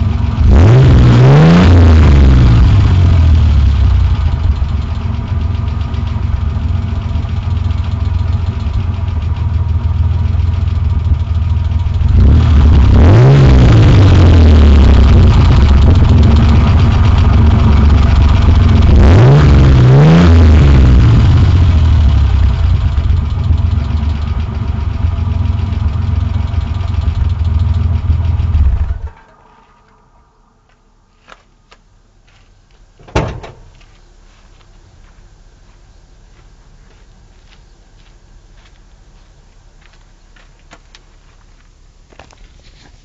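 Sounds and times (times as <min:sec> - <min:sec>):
engine revving and idling: 0:00.0 - 0:30.1
sharp thump: 0:33.0 - 0:33.8.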